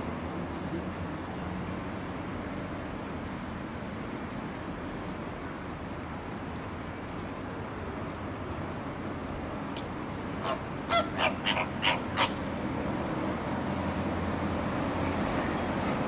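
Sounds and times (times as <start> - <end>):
flamingos honking: 10.4 - 12.4
hiss of spraying water: 12.8 - 16.0.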